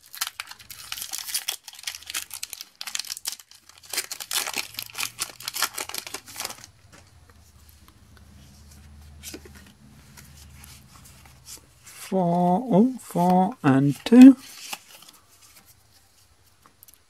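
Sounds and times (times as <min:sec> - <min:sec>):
foil wrapper tearing and crinkling: 0:00.0 - 0:06.7.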